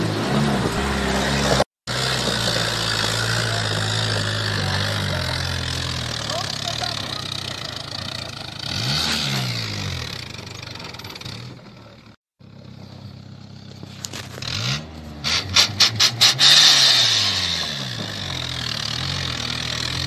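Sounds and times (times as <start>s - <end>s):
truck engine revving: 0.0s - 13.1s, 14.1s - 20.0s
tyres hissing on dirt: 15.2s - 18.4s.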